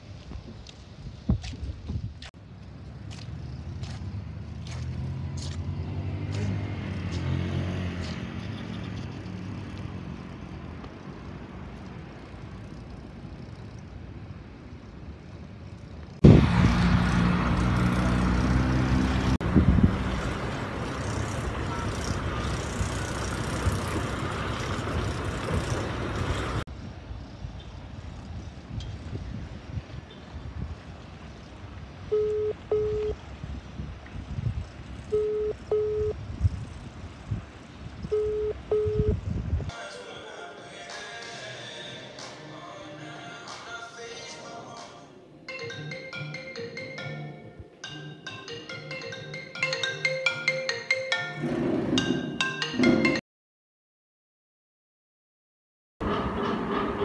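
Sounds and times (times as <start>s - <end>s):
vehicle engines passing: 2.3s - 39.7s, 48.5s - 53.1s, 56.0s - 57.0s
close engine running: 16.2s - 26.6s, 56.0s - 57.0s.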